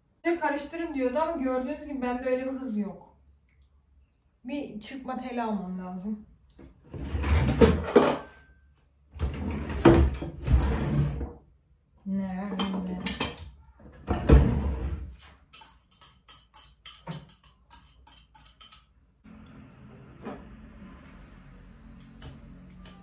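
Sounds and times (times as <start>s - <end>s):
drawer opening: 6.9s - 8.2s, 9.2s - 11.3s
whisk tapping in a pan: 15.5s - 18.8s
metal utensils clattering: 15.5s - 19.0s.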